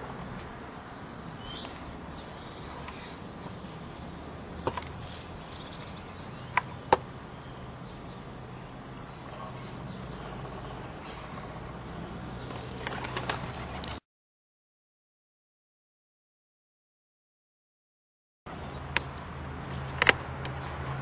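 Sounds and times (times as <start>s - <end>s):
outdoor background: 0.0s - 14.0s, 18.5s - 21.0s.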